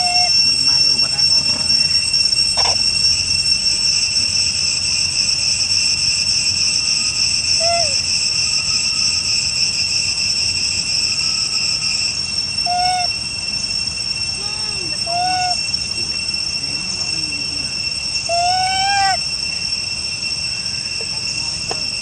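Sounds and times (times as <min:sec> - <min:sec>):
high-pitched insect chorus: 0:00.0 - 0:22.0.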